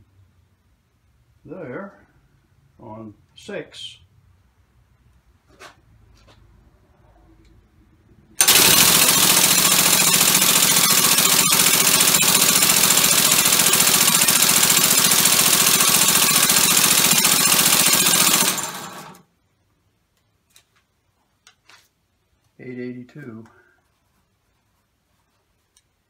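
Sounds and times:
compressed-air engine chattering: 8.4 - 19.1.

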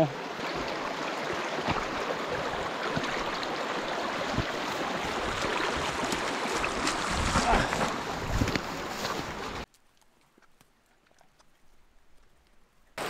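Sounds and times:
brook water rushing: 0.0 - 9.7.

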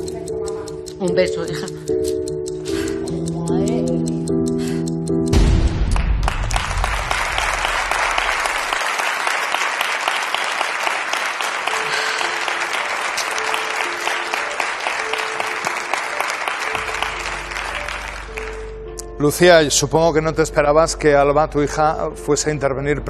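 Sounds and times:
audience applauding: 5.9 - 18.8
soft music notes: 12.0 - 23.0.

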